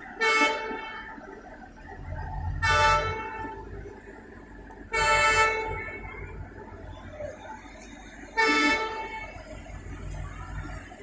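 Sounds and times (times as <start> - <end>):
electric train rumbling past: 0.0 - 11.0
train horn toots: 0.2 - 1.2, 2.6 - 3.7, 4.9 - 6.1, 8.4 - 9.5.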